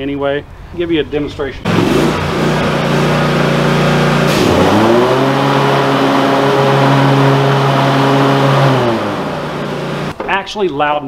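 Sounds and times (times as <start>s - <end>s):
loud mower engine running: 1.7s - 10.1s.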